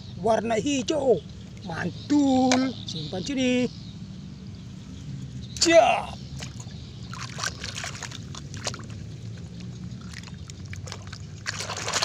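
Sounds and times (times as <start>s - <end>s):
short splashes: 5.6s - 12.0s
water sloshing: 5.6s - 12.0s.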